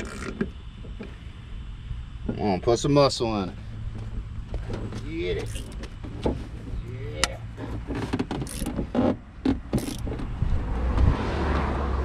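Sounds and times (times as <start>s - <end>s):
socket wrench clicking: 8.4s - 8.8s, 9.8s - 10.1s.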